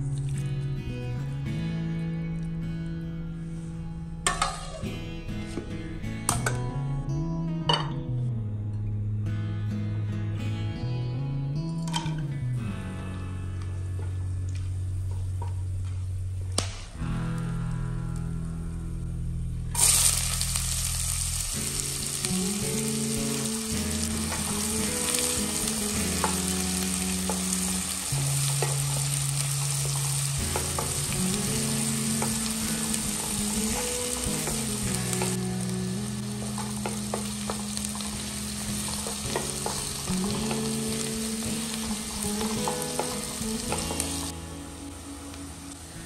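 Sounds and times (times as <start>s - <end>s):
food sizzling in hot oil: 19.8s - 45.9s.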